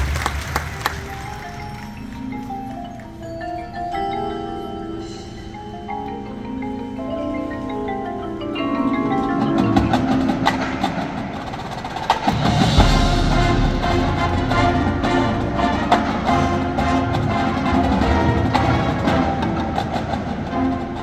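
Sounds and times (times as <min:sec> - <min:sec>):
marimbas playing: 0:00.8 - 0:21.0
sharp percussion hits: 0:09.4 - 0:20.7
deep bass: 0:12.6 - 0:15.8.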